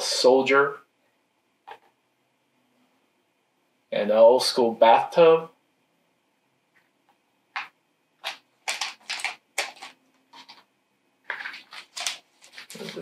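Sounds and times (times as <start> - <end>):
game pieces clicking and rustling: 7.6 - 10.6.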